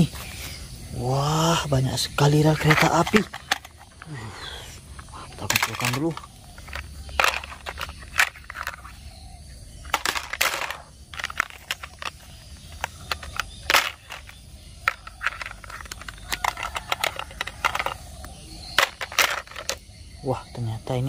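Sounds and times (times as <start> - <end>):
plastic track pieces clacking: 2.6 - 4.1, 5.4 - 8.9, 9.9 - 18.0, 18.8 - 19.8.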